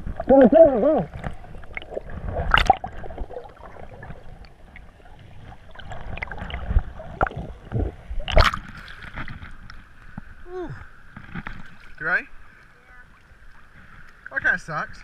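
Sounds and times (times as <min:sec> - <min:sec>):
muffled underwater bubbling: 0:00.0 - 0:08.8
rushes of bubbles or splashing: 0:00.0 - 0:09.7.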